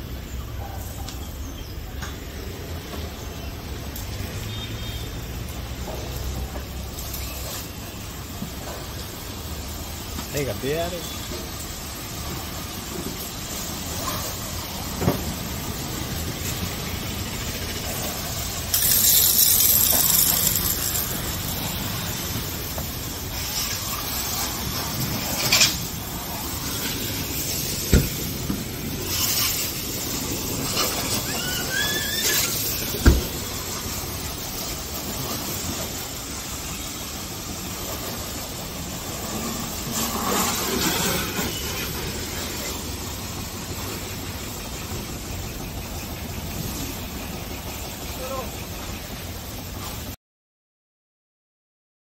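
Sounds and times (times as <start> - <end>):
high-pressure water spray hissing: 0.0 - 50.2
brief squeaks: 31.0 - 33.0.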